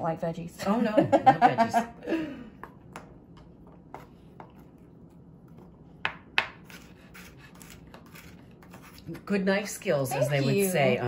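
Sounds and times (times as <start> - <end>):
knife cutting on cutting board: 6.4 - 9.1.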